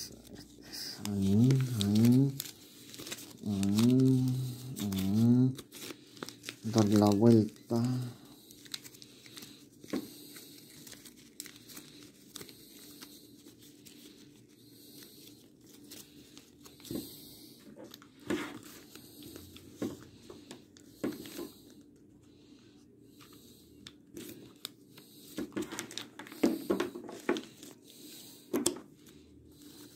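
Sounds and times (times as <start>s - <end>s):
plastic ribbon crinkling: 0.1s - 16.9s.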